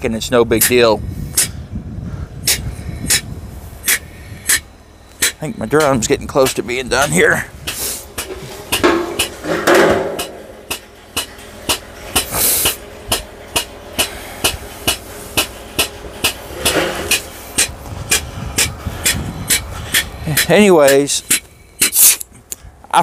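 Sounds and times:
exhaust air hiss: 0.6 - 5.6, 7.2 - 9.5, 10.2 - 22.8
diaphragm pump clacking: 7.6 - 22.2.

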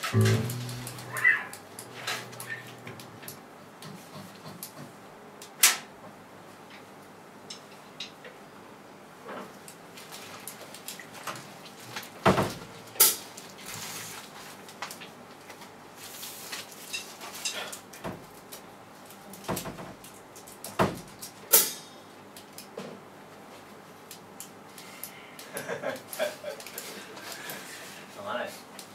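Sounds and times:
drum kit hits: 0.0 - 3.2.

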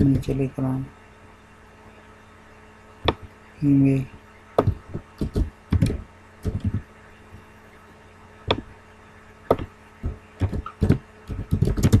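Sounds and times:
faint electrical hum: 0.0 - 12.0
keyboard key taps: 4.6 - 6.8, 9.5 - 12.0.

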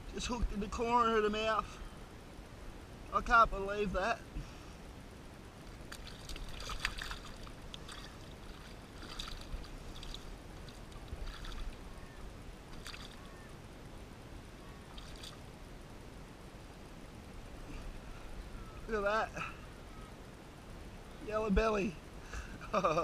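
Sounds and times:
fish splashing in shallow water: 5.6 - 13.6, 14.6 - 15.5.

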